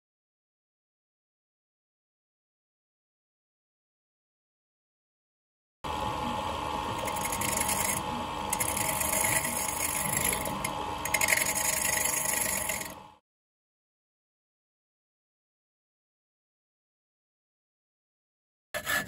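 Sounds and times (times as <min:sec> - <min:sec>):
lathe motor hum: 0:05.8 - 0:13.2.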